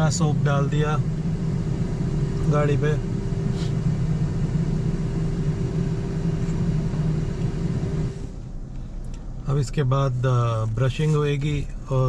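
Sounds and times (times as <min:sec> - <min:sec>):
car wash machinery humming: 0:00.0 - 0:12.0
constant tone: 0:00.0 - 0:12.0.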